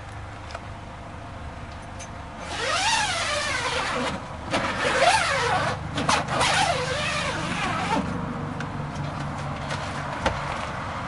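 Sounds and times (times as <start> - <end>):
roof mechanism whining and squeaking: 1.9 - 8.2.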